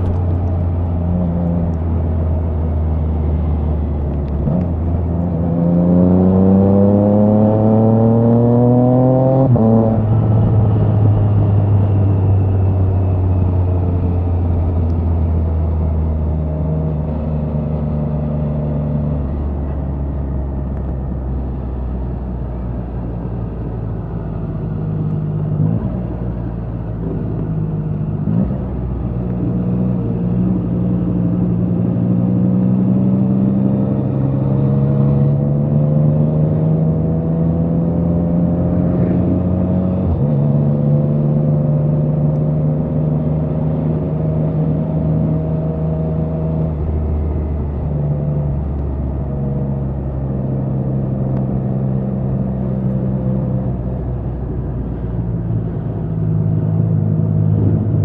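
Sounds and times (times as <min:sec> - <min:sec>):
motorcycle engine revving: 0:04.6 - 0:11.9, 0:28.1 - 0:46.4.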